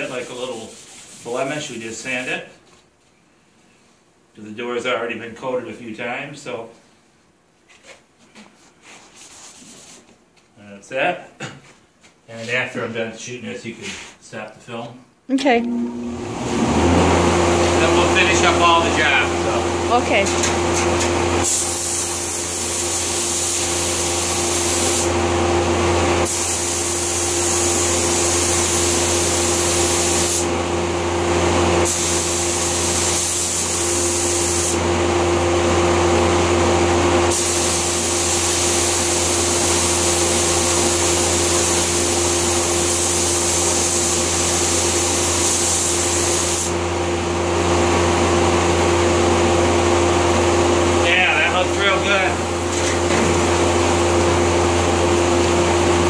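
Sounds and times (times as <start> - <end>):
air supply machine hum: 15.3 - 56.0
paint spray gun hissing: 21.4 - 25.1, 26.2 - 27.6, 28.4 - 30.5, 31.8 - 34.8, 37.3 - 39.6, 41.2 - 46.7.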